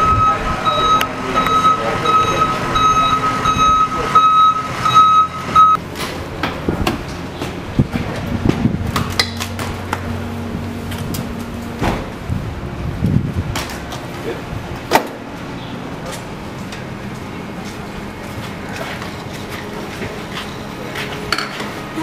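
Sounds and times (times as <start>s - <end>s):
reversing alarm beeping: 0.0s - 5.8s.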